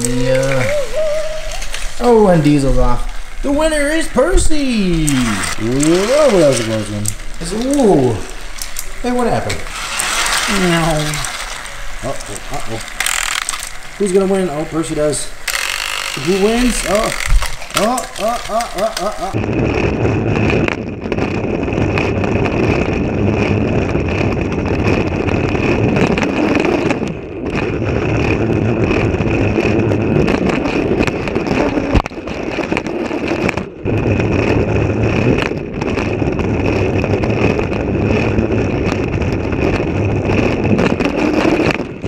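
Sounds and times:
toy train motor whirring: 5.1s - 7.1s, 9.7s - 11.6s, 12.8s - 14.6s, 15.4s - 19.4s
toy train rattling on track: 5.1s - 7.5s, 9.7s - 11.7s, 12.6s - 19.4s.

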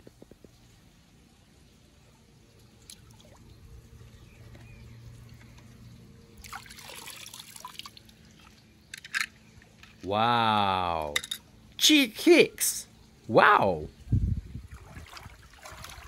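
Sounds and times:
pool water splashing: 0.0s - 4.3s, 5.0s - 8.8s, 14.7s - 16.0s.

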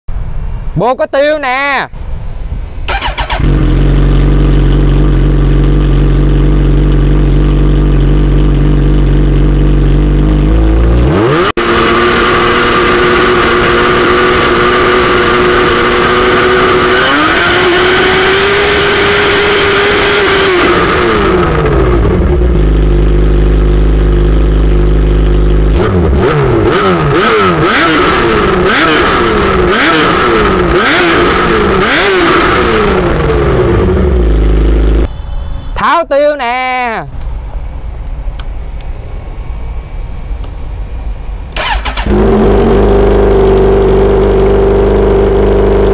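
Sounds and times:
motorcycle engine idling and revving: 2.8s - 35.5s, 40.0s - 45.9s
quick throttle blips: 2.9s - 8.1s, 41.5s - 44.5s.

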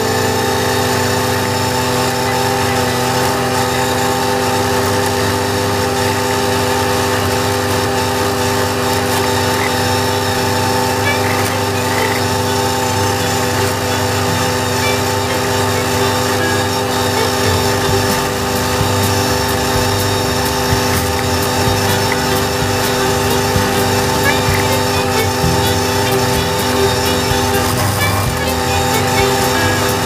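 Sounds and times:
flail mower cutting grass: 0.0s - 30.0s
tractor diesel engine running: 0.0s - 30.0s.

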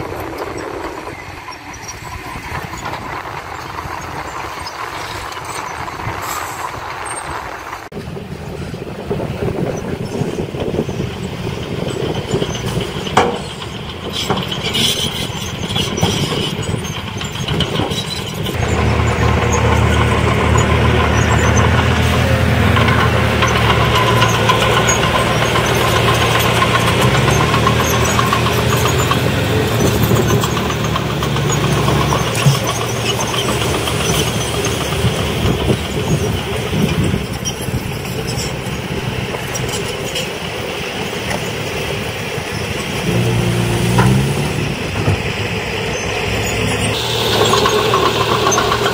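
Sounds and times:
diesel truck engine: 0.0s - 48.9s.

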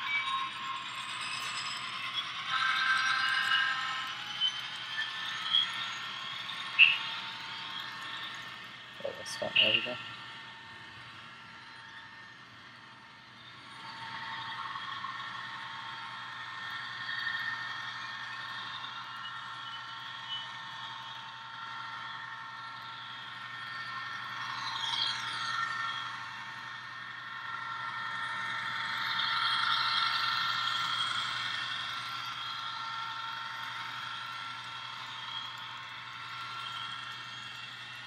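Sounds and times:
diesel engine sound from small speaker: 6.7s - 7.2s, 9.0s - 10.4s.

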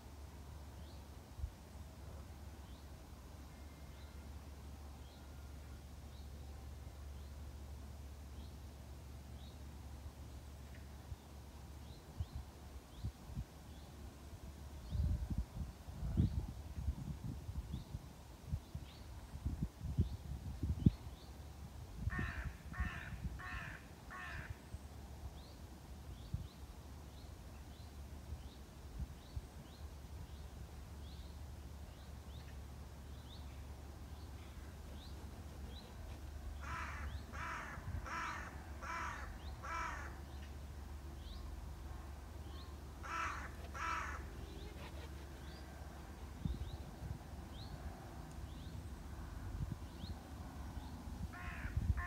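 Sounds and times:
low wind rumble: 0.1s - 52.0s
wind rumble on microphone: 14.4s - 23.7s, 35.0s - 39.2s, 43.9s - 52.0s
wind buffeting microphone: 14.8s - 21.1s, 51.2s - 52.0s
crow cawing: 22.1s - 24.6s, 36.6s - 40.2s, 43.0s - 44.3s, 51.3s - 52.0s.

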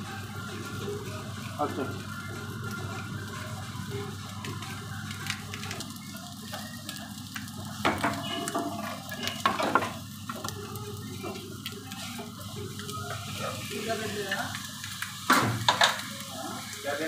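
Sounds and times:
food sizzling on hot plate: 0.0s - 17.0s.

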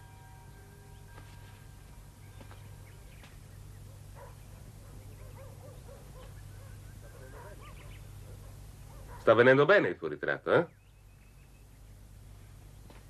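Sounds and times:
steady low hum: 0.0s - 9.4s, 10.0s - 13.0s
faint animal calls: 3.9s - 9.3s.

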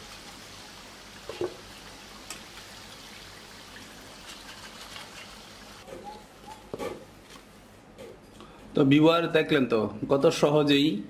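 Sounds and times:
food deep-frying in oil: 0.0s - 5.9s.

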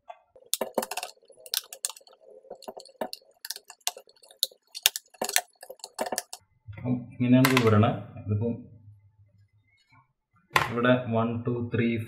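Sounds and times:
plastic clicks and taps: 0.5s - 6.4s.

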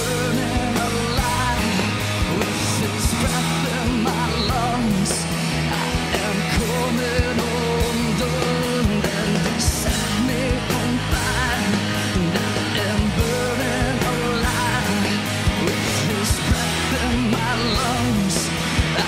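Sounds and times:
person singing: 0.0s - 19.0s
rock band playing: 0.0s - 19.0s
steady drum beat: 0.0s - 19.0s.

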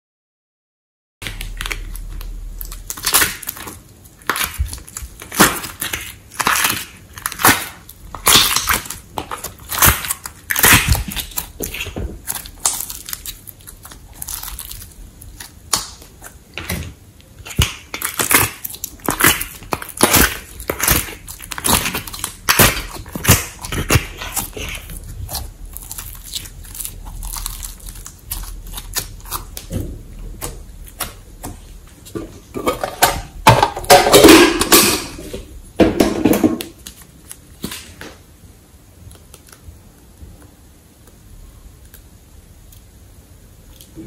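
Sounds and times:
sticky slime clicks and crackles: 1.2s - 31.7s
wet slime squishing and popping: 1.2s - 35.3s.

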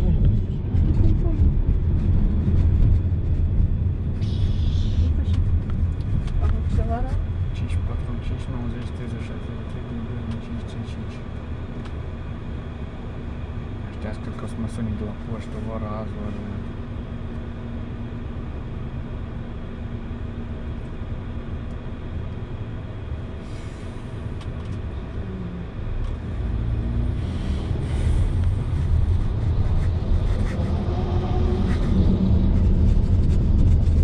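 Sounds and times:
car engine and road rumble: 0.0s - 34.0s.

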